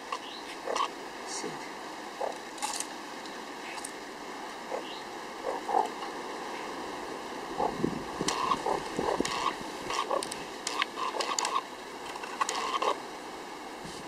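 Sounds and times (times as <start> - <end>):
meerkat chirping: 7.6 - 7.8, 8.4 - 10.3.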